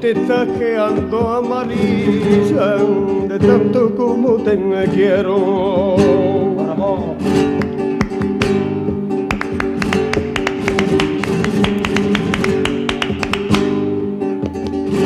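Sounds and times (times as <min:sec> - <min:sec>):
person singing: 0:00.0 - 0:08.2
acoustic guitar strumming: 0:00.0 - 0:15.0
sharp percussive strikes: 0:07.6 - 0:13.8.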